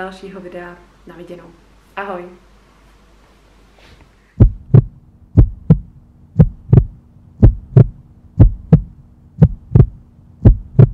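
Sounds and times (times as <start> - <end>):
faint steady hum: 0.0 - 10.9
heartbeat thumps: 4.4 - 10.9.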